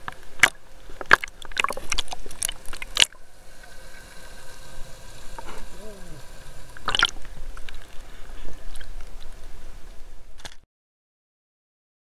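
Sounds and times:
muffled underwater hiss: 0.1 - 10.3
sea water splashing against camera: 0.4 - 9.4.

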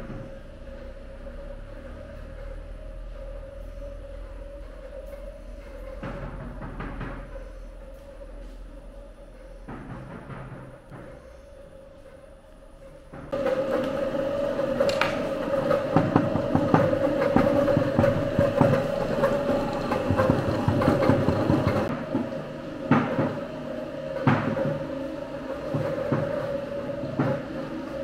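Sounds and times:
machine humming: 0.0 - 28.0
rattling and clattering: 12.8 - 21.9.

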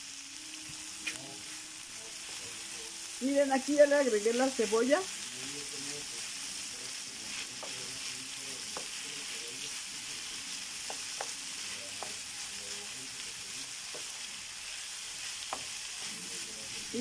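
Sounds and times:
vegetables sizzling in a skillet: 0.0 - 17.0
spoon tapping pan: 7.5 - 8.0, 8.6 - 9.0, 10.8 - 12.7, 13.8 - 14.2, 15.4 - 16.1.

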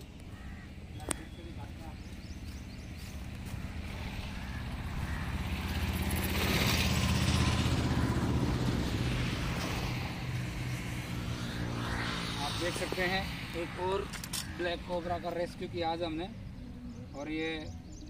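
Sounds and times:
vehicle engine running: 0.0 - 15.3.

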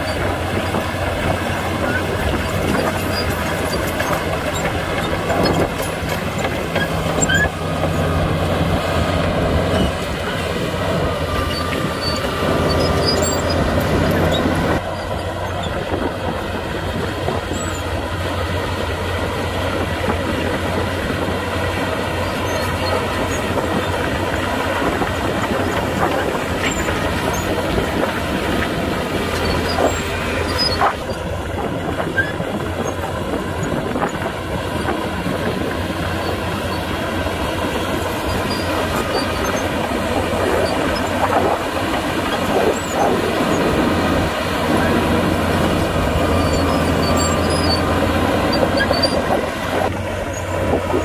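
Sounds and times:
diesel engine under load: 0.0 - 51.0
steel tracks clanking and squealing: 0.0 - 51.0.

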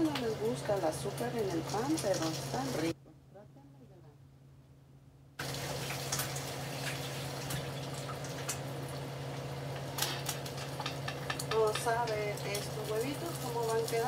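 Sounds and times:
food sizzling in frying pans: 0.0 - 3.0, 5.4 - 14.0
low steady hum: 0.0 - 14.0.

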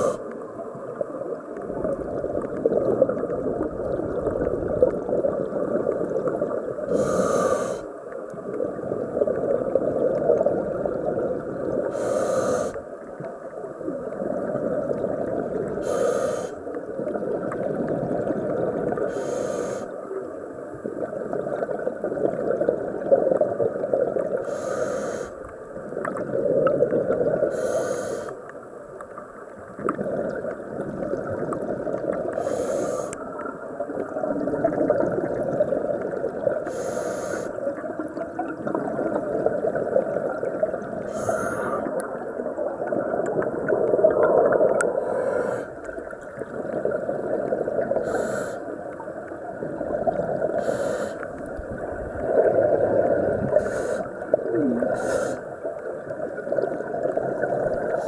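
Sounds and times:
regulator hissing inhalations: 6.9 - 8.0, 11.9 - 12.8, 15.8 - 16.6, 19.1 - 19.9, 24.4 - 25.4, 27.5 - 28.4, 32.4 - 33.2, 36.7 - 37.6, 41.1 - 41.8, 48.0 - 48.8, 50.6 - 51.3, 53.5 - 54.1, 54.9 - 55.5
bubbling exhaled air: 49.5 - 55.5.

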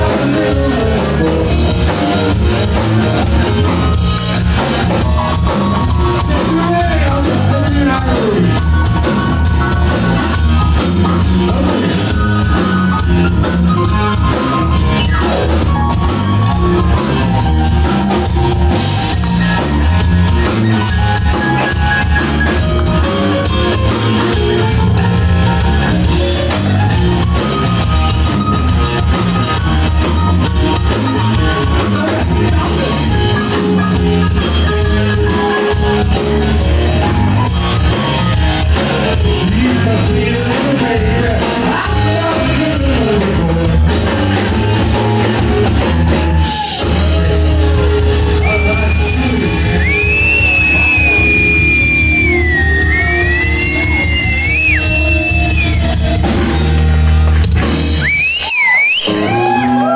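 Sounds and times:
person singing: 0.0 - 2.2, 39.0 - 44.5
blues-rock band playing: 0.0 - 59.9.

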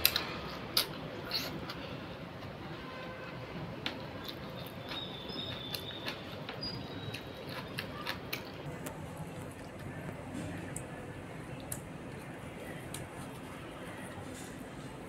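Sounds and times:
bread tearing and chewing: 3.9 - 10.9.

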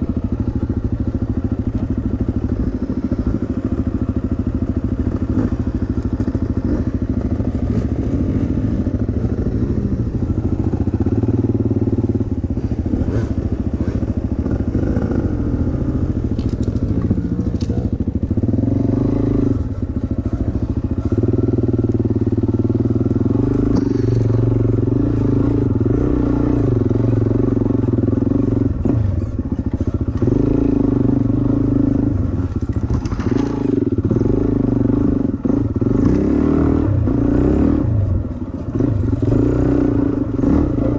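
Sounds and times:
dirt bike engine running: 0.0 - 40.9.

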